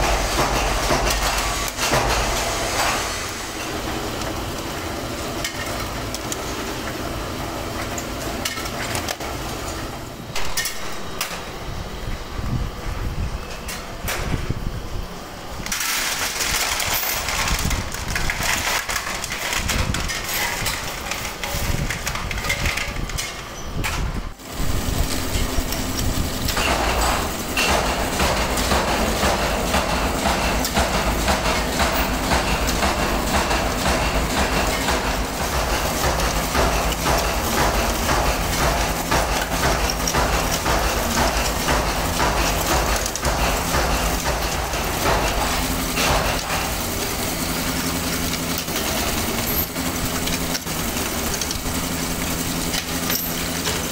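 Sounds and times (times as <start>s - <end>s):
factory machinery running: 0.0s - 53.9s
spindle machine humming: 23.0s - 53.9s.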